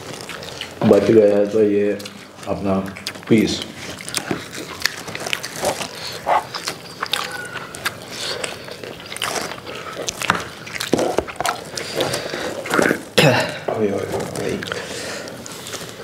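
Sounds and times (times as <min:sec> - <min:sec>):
wet chewing and lip-smacking: 0:00.0 - 0:13.2, 0:14.3 - 0:16.0.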